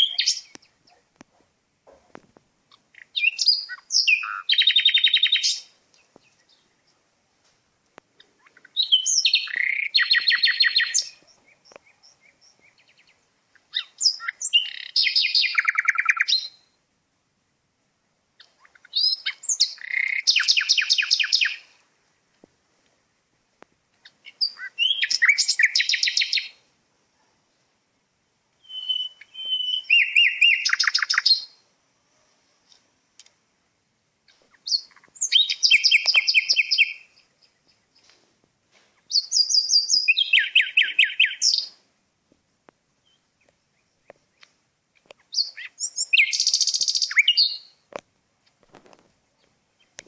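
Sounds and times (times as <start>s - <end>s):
songbird singing with rattling trill: 0.0s - 1.3s, 2.7s - 7.0s, 8.0s - 16.8s, 18.4s - 21.8s, 23.9s - 26.7s, 28.2s - 31.6s, 34.2s - 38.2s, 39.0s - 41.8s, 43.0s - 48.6s, 49.2s - 50.0s.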